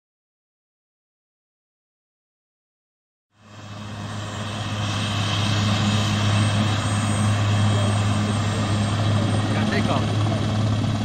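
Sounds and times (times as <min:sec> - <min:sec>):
helicopter rotors turning: 0:03.4 - 0:11.0.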